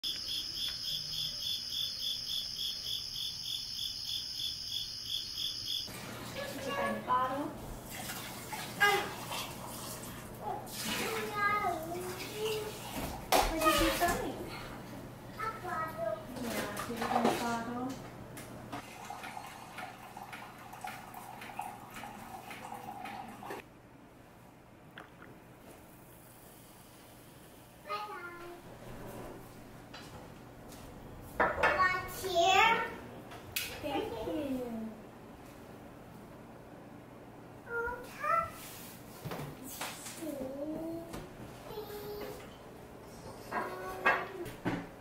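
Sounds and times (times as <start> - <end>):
crickets chirping: 0.0 - 5.9
coffee ticking and dripping: 18.8 - 23.6, 24.9 - 25.4.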